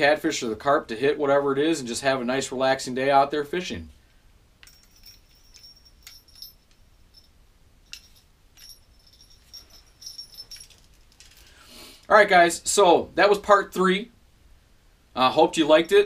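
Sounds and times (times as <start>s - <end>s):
fishing rod bell jingling: 4.6s - 11.5s.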